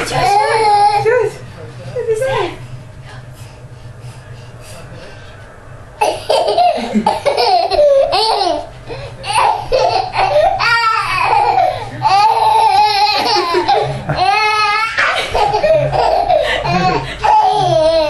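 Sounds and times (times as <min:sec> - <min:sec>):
toddler laughing hysterically: 0:06.0 - 0:18.0.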